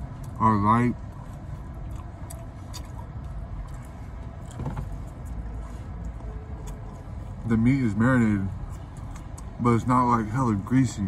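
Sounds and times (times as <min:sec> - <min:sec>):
vehicle rumble inside cabin: 0:00.0 - 0:11.0
chewing clicks: 0:01.8 - 0:05.4.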